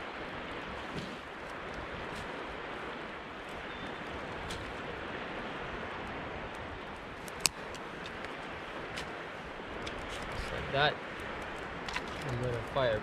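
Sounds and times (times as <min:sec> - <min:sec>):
campfire crackling: 0:00.0 - 0:13.0
sharp wood crack: 0:07.2 - 0:09.1.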